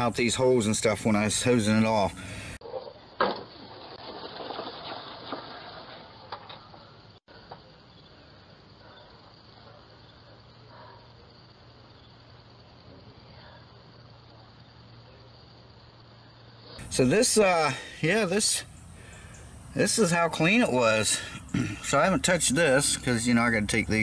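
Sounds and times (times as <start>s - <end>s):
metal mower deck scraping: 2.7s - 7.1s
faint hiss: 15.7s - 23.4s.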